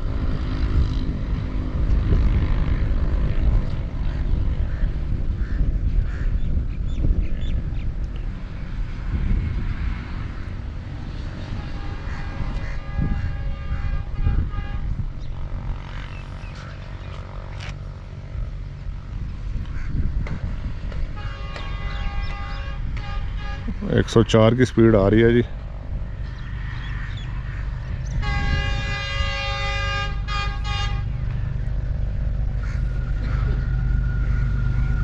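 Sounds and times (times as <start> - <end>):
wind buffeting microphone: 0.0 - 35.0
low rumble: 24.8 - 35.0.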